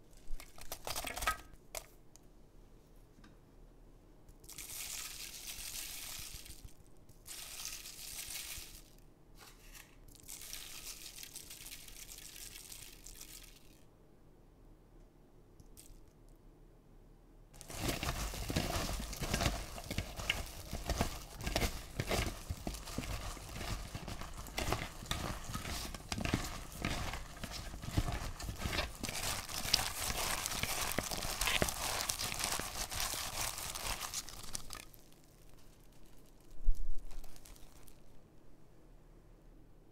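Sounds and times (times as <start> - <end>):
cabbage leaves crunching by hand: 17.6 - 35.1
faint rustling: 17.6 - 38.2.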